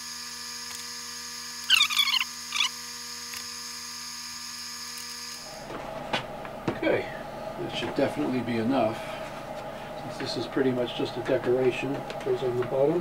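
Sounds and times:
electrical hum: 0.0 - 3.8, 4.8 - 13.0
squeeze bottle squeaking: 1.7 - 2.7.

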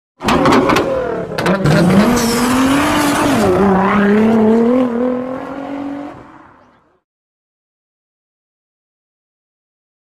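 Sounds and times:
sports car engine revving: 0.8 - 6.5.

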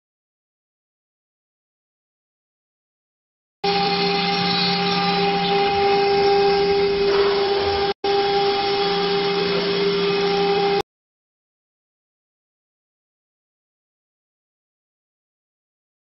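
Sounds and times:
router spindle whine: 3.6 - 10.8.

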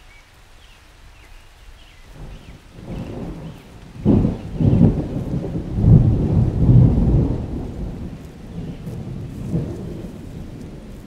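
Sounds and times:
low rumbling noise: 2.2 - 11.0.

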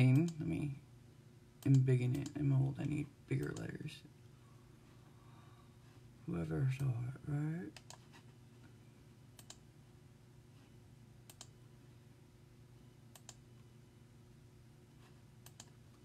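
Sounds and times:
low steady hum: 0.0 - 16.0
faint computer clicks: 1.6 - 3.7, 7.7 - 8.0, 9.4 - 9.6, 11.3 - 11.6, 13.1 - 13.4, 15.4 - 15.8.

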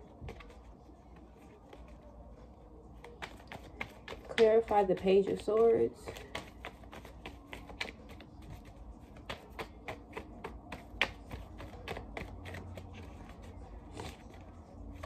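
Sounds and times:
cards being shuffled: 0.0 - 2.0, 3.0 - 15.0.

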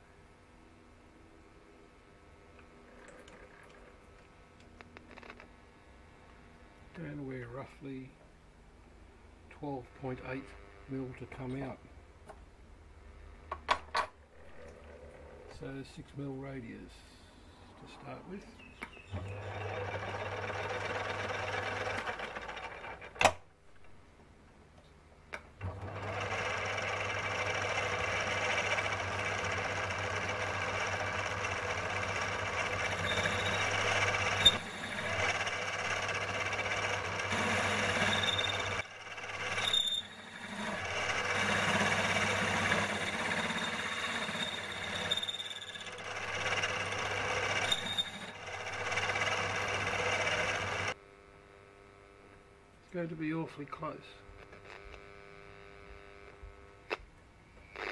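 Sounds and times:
metal lathe motor hum: 19.1 - 23.1, 25.6 - 51.0.

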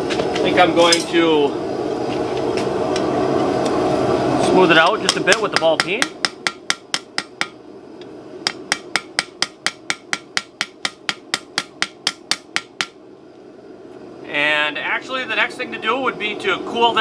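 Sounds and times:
hammer striking steel on anvil: 4.9 - 7.6, 8.4 - 13.0.

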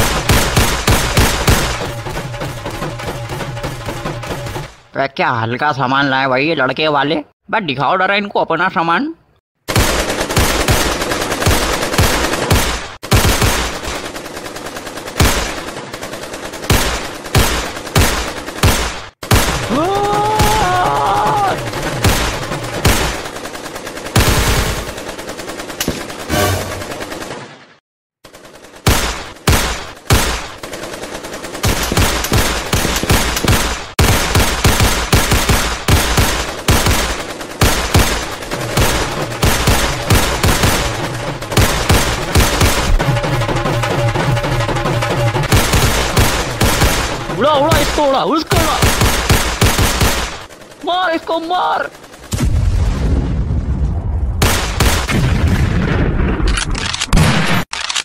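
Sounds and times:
rifles and pistols firing bursts: 0.0 - 4.9, 9.7 - 52.3, 54.4 - 55.2
person crying out: 19.7 - 21.7.

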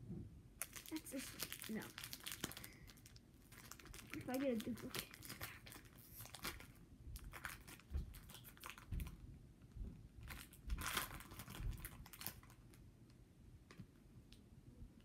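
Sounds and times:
foil wrapper crinkling: 0.6 - 9.2, 10.2 - 12.8.

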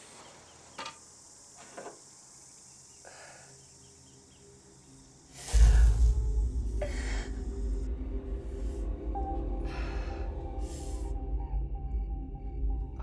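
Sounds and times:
insect hiss: 0.0 - 11.6
deep rumble: 5.5 - 13.0.

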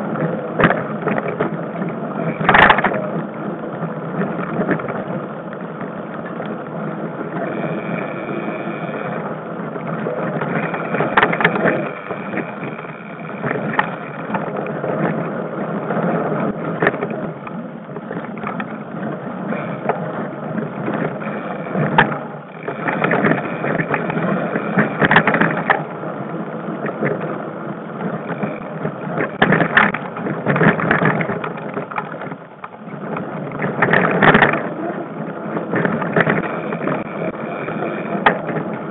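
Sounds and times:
bike rattling over bumps: 0.0 - 38.9
brake squeals: 7.3 - 9.4, 35.7 - 38.9.

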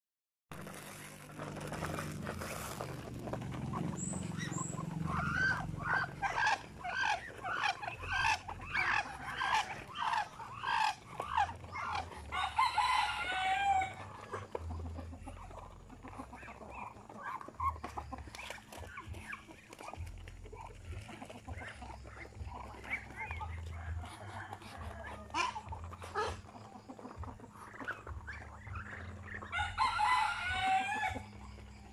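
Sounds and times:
chickens clucking: 0.6 - 31.9
rooster crowing: 12.2 - 14.2, 29.4 - 31.4.

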